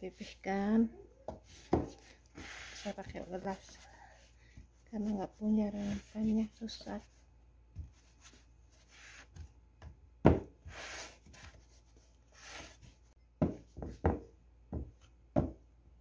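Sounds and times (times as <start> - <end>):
rubbing and scraping on dough: 0.0 - 9.6, 10.6 - 13.2.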